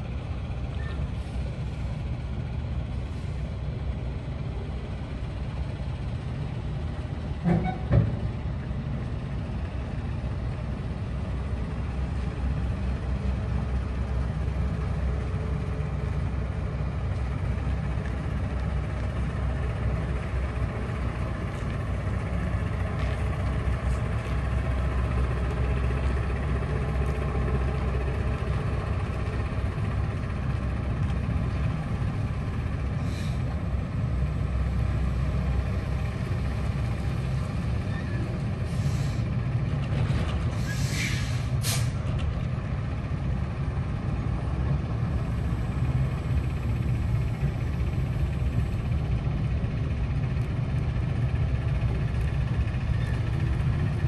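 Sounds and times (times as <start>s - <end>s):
truck diesel engine droning: 0.0s - 54.0s
air brake hisses: 33.0s - 33.5s, 38.7s - 39.3s, 40.5s - 42.0s.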